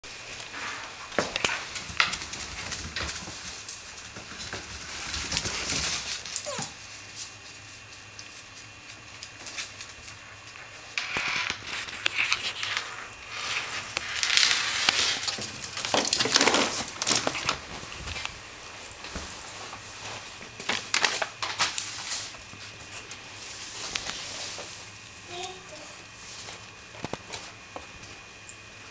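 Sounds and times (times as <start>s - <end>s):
dogs scuffling on tile floor: 0.1s - 28.9s
dog whimpering: 6.4s - 6.8s.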